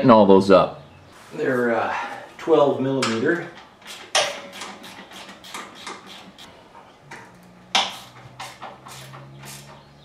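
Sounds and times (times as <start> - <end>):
hand tools clicking on metal: 3.0 - 6.5.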